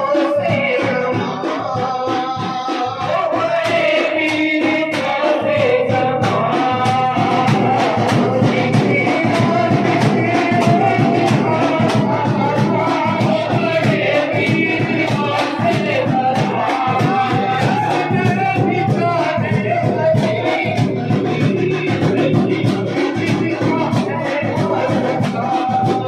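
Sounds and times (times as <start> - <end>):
men singing a chant: 0.0 - 26.0
percussion beat: 0.0 - 26.0.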